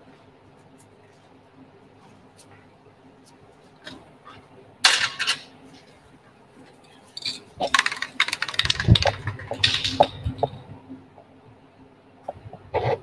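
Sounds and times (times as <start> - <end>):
small metal items clinking: 6.8 - 10.6.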